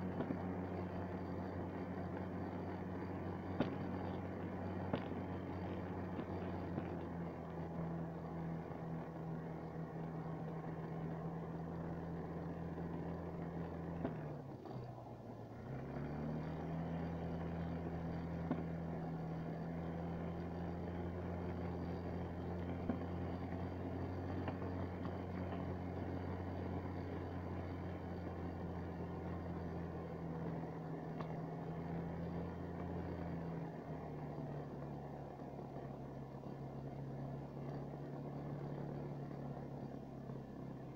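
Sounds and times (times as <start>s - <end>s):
snowmobile engine running: 0.0s - 40.9s.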